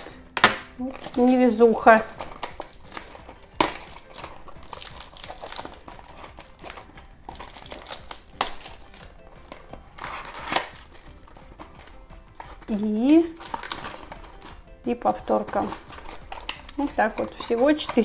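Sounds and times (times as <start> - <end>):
plastic wrap crinkling and tearing: 0.0 - 18.0
plastic snaps: 15.5 - 18.0.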